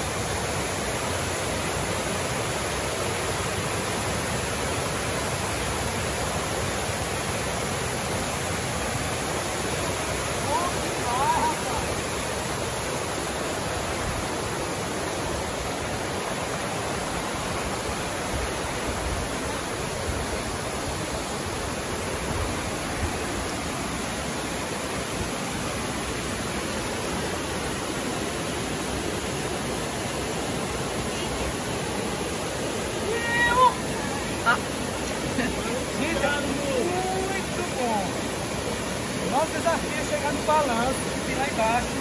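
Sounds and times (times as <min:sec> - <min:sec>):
waterfall rushing over rocks: 0:00.0 - 0:42.0.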